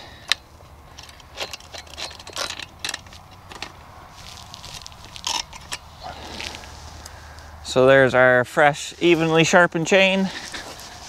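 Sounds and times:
chain links clinking and rattling: 0:00.9 - 0:06.6.

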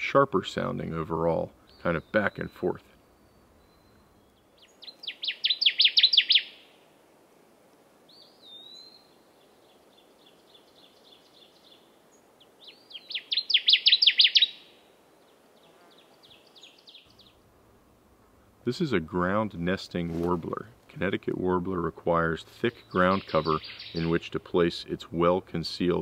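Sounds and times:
faint bird song: 0:00.0 - 0:06.9, 0:08.0 - 0:17.5, 0:18.3 - 0:26.0
bird singing ringing song: 0:00.6 - 0:06.8, 0:08.1 - 0:17.4, 0:22.2 - 0:24.7.

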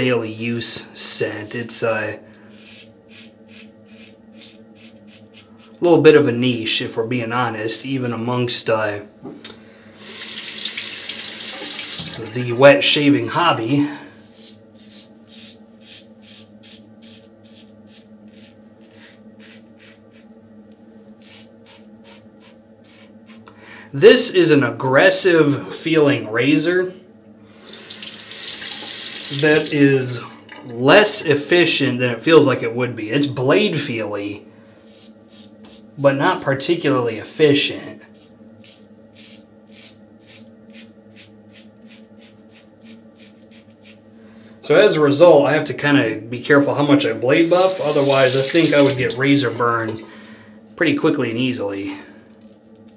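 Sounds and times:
steady low hum: 0:00.0 - 0:10.4, 0:11.6 - 0:28.4, 0:29.2 - 0:52.9
razor scraping stubble: 0:02.5 - 0:05.9, 0:14.2 - 0:20.3, 0:21.2 - 0:23.5, 0:34.7 - 0:36.1, 0:37.0 - 0:44.0.

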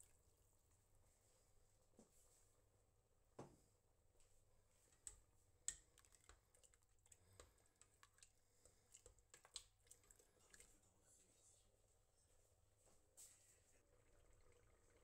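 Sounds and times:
spoon stirring in metal pot: 0:05.0 - 0:10.9.

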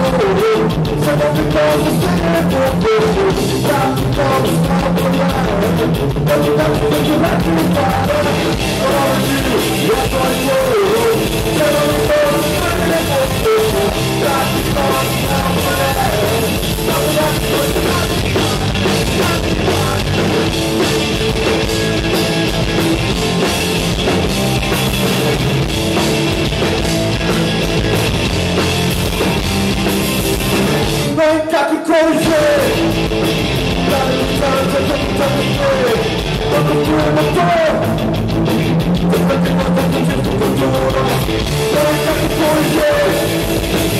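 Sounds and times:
man singing: 0:00.0 - 0:20.5, 0:30.9 - 0:33.1, 0:33.7 - 0:38.2, 0:39.0 - 0:43.9
punk rock band playing: 0:00.0 - 0:43.9.

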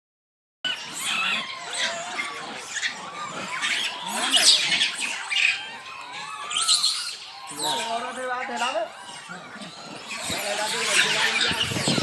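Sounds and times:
monkeys squeaking and chattering: 0:00.7 - 0:12.0.

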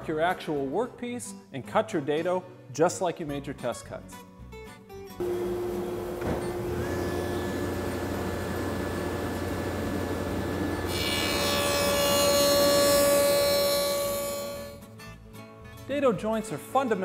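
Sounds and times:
saw blade cutting wood: 0:05.2 - 0:14.8
table saw running: 0:05.2 - 0:14.8.

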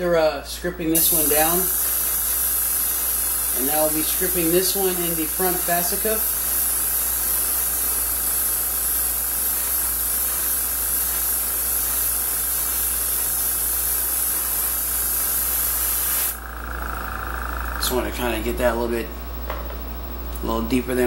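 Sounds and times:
airbrush spraying hiss: 0:01.0 - 0:17.8.

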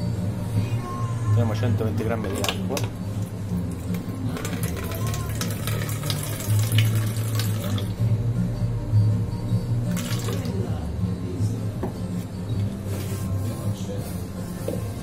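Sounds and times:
background music: 0:00.0 - 0:15.0
water pouring into plastic container: 0:02.3 - 0:07.9, 0:09.9 - 0:10.5.

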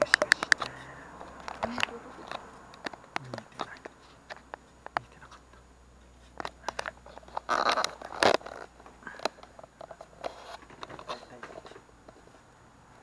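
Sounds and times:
sharp clicks: 0:00.0 - 0:05.4
rustling and scraping: 0:00.0 - 0:12.5.

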